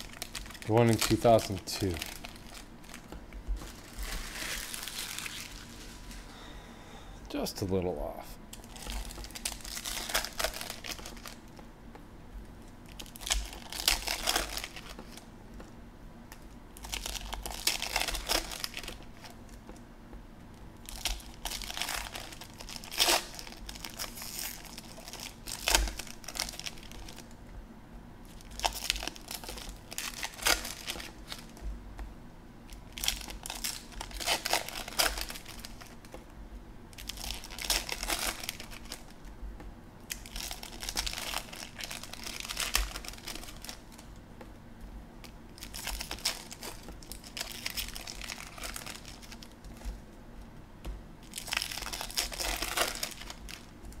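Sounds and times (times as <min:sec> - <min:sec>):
cards rustling: 0:00.0 - 0:06.3
foil wrappers crinkling and tearing: 0:00.0 - 0:06.3, 0:08.5 - 0:11.6, 0:12.8 - 0:15.3, 0:16.3 - 0:19.6, 0:20.8 - 0:27.4, 0:28.2 - 0:31.6, 0:32.7 - 0:36.2, 0:36.9 - 0:39.3, 0:40.1 - 0:44.1, 0:45.2 - 0:50.0, 0:51.2 - 0:54.0.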